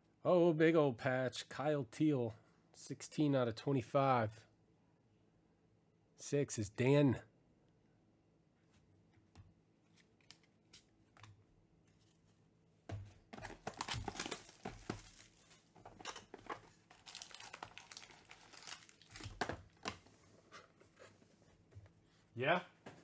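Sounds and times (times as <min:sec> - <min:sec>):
foil packs handled: 0:13.4 - 0:19.9
plastic shrink wrap tearing: 0:13.6 - 0:15.7, 0:16.7 - 0:19.9.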